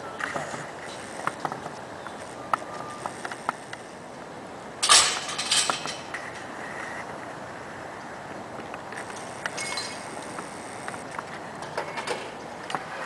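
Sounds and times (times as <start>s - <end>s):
metal hardware clinking: 4.8s - 6.2s
rattling metal clatter: 4.8s - 6.2s.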